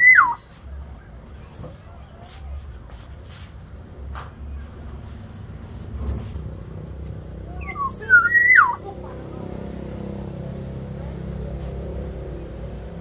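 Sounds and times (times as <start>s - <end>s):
bird whistling phrase: 0.0s - 0.5s, 7.6s - 8.8s.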